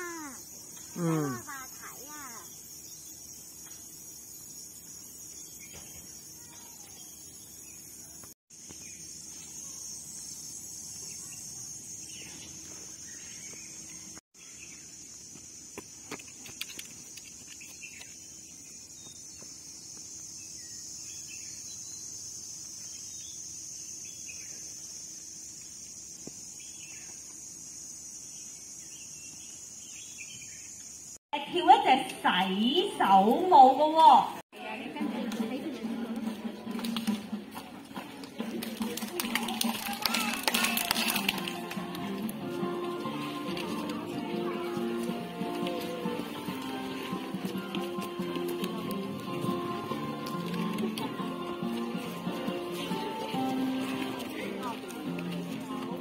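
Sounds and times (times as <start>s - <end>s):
insects shrilling: 0.0s - 13.6s, 14.4s - 29.8s
faint bird chirps: 0.0s - 14.9s.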